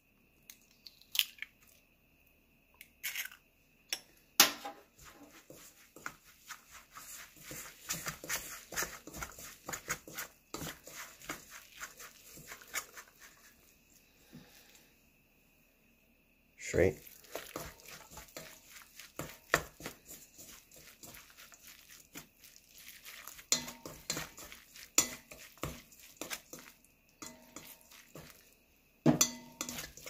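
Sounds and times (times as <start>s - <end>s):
egg cracking: 0.5s - 1.8s
utensil scraping metal bowl: 5.0s - 13.5s, 17.2s - 28.4s, 29.1s - 30.0s.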